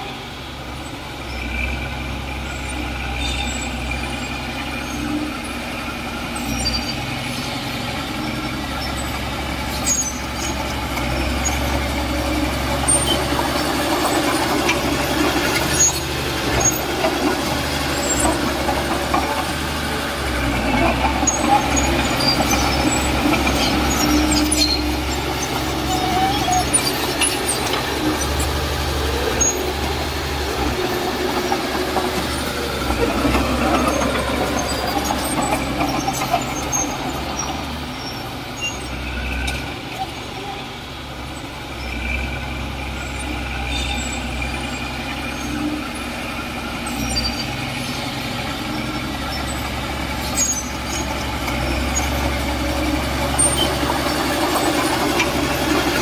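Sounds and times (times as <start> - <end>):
diesel machinery engine drone: 0.0 - 56.0
metallic squeaks and clanks: 8.2 - 40.2, 46.7 - 56.0.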